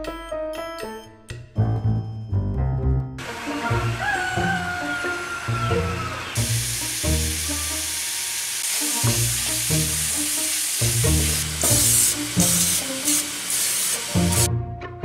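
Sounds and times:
background music: 0.0s - 15.0s
meat sizzling in a skillet: 6.4s - 14.5s.

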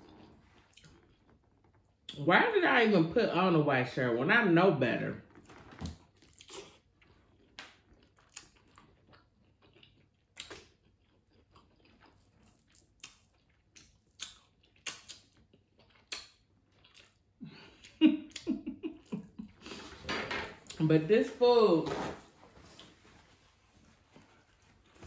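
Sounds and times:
wet eating and chewing sounds: 0.0s - 2.2s, 5.3s - 20.0s.

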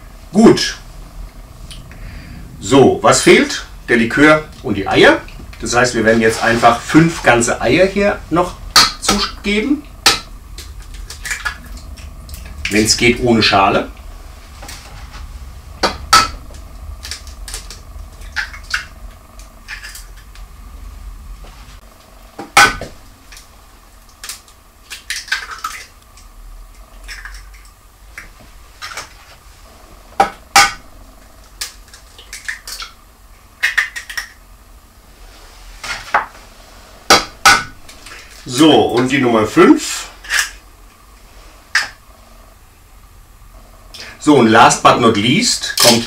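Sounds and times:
eggshells clicking apart: 33.6s - 34.4s.

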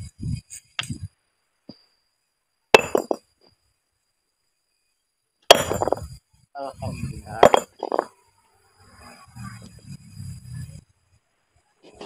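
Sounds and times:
hammer striking stone: 2.8s - 3.2s, 5.5s - 6.1s, 7.4s - 8.1s.

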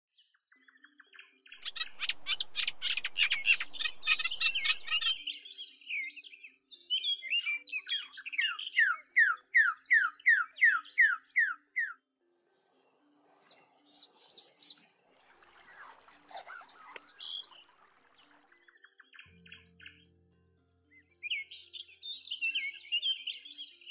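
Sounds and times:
soft background music: 0.1s - 23.9s
birds chattering: 1.6s - 5.2s, 13.4s - 18.5s
bird whistles: 1.6s - 5.3s, 15.6s - 17.6s
bird chirps: 1.6s - 6.4s, 7.0s - 20.0s.

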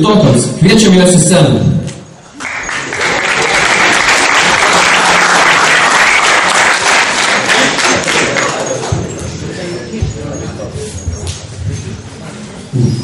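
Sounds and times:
audience applause: 2.3s - 8.8s.

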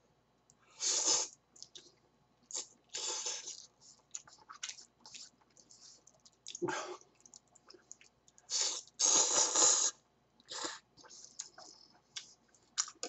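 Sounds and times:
mouth clicks and chewing: 1.3s - 9.7s, 10.4s - 13.0s
person slurping noodles: 8.5s - 11.7s.

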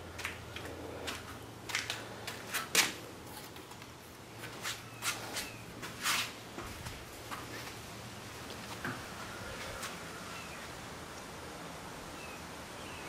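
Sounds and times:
footsteps and handling scuffs: 4.4s - 7.8s.

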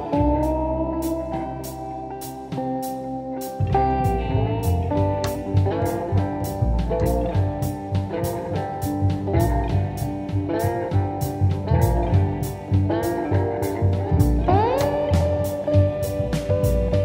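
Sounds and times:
guitar music with drum beat: 0.0s - 17.0s
note sliding up in pitch: 13.2s - 17.0s.

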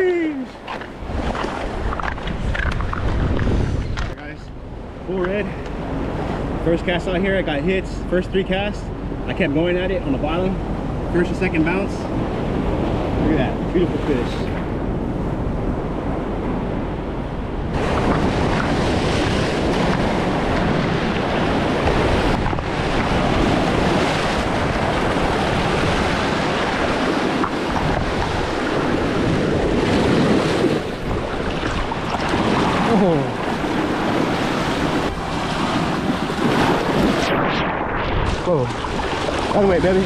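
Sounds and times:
waves washing against jetty: 0.0s - 40.0s
wind noise on microphone: 0.0s - 40.0s.

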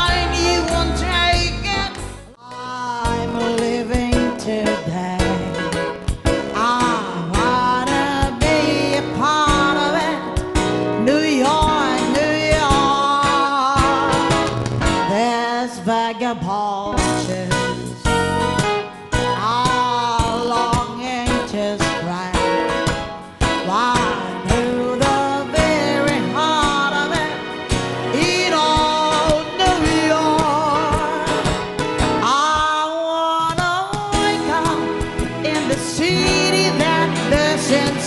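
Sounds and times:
woman singing: 0.0s - 18.3s, 19.2s - 38.0s
live band music: 0.0s - 38.0s.

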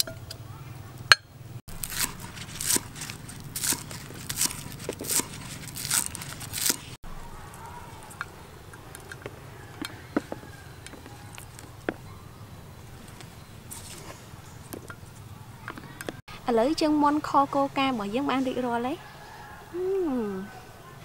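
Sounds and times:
cleaver chopping on wooden board: 1.8s - 6.8s.

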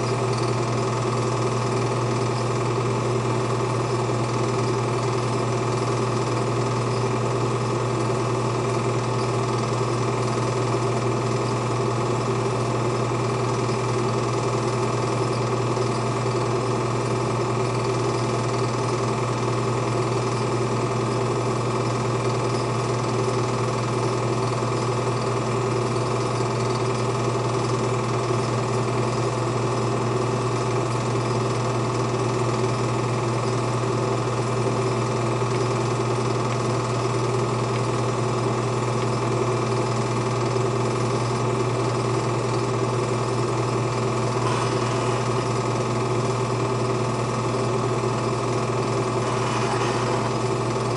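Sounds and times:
film projector whirring: 0.0s - 50.9s
low hum: 44.3s - 47.0s, 49.0s - 50.9s.

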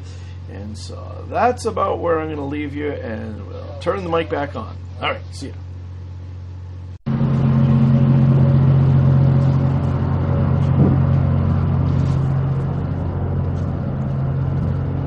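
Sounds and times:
tugboat engines humming: 7.1s - 15.0s
wind on microphone: 10.4s - 12.0s.

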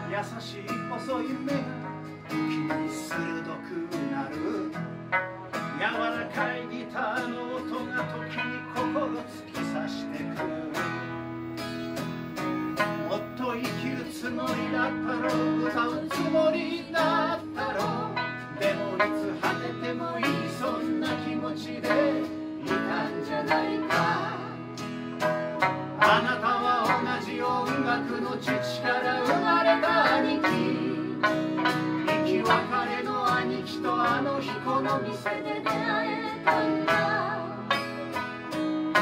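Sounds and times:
man singing: 0.0s - 4.8s, 5.8s - 11.0s, 13.0s - 24.4s, 32.1s - 35.9s
strummed acoustic guitar: 0.0s - 39.0s
sanshin plucking: 0.7s - 39.0s
accordion chords: 10.4s - 39.0s
woman singing harmony: 19.3s - 24.7s, 26.1s - 31.4s, 32.1s - 37.8s.

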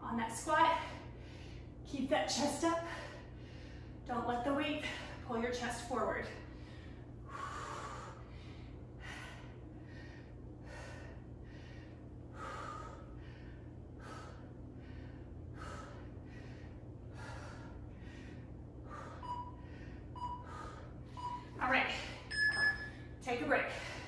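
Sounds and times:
person breathing heavily: 6.4s - 21.2s
short electronic beeps: 19.2s - 19.6s, 21.2s - 21.6s, 22.3s - 23.0s.

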